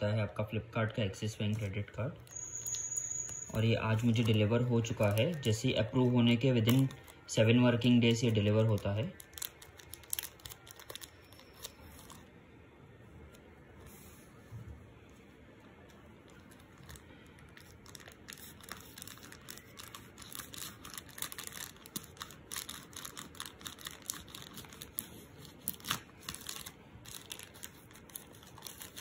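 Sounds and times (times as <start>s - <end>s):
plastic crinkling and tearing: 1.5s - 12.3s, 16.2s - 29.0s.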